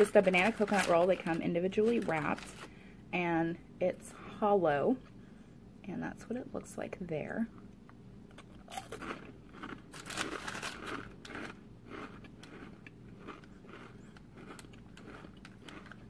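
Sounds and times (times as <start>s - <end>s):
person chewing crunchy wafer: 8.3s - 16.0s.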